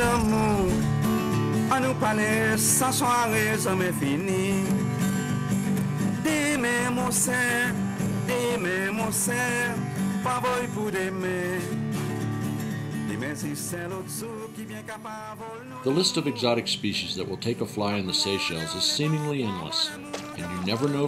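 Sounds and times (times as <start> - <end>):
person singing with vibrato: 0.0 - 4.7, 18.2 - 21.0
guitar accompaniment: 0.0 - 21.0.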